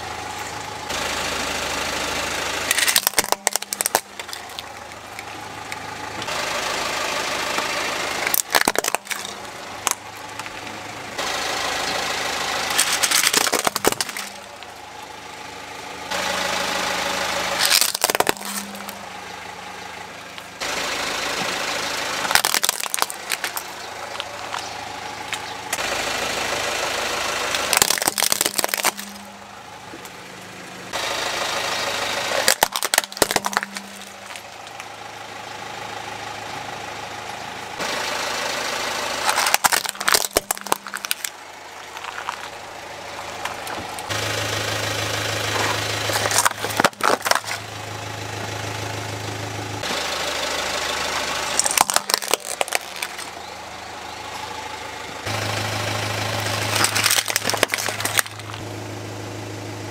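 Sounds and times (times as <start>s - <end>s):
car engine running: 0.0s - 59.9s
tyre crushing plastic toys: 2.7s - 6.3s, 7.5s - 10.7s, 12.7s - 14.7s, 17.5s - 19.1s, 22.2s - 24.7s, 27.5s - 29.4s, 32.3s - 34.8s, 39.2s - 42.6s, 45.5s - 47.7s, 51.5s - 53.4s, 56.3s - 58.6s.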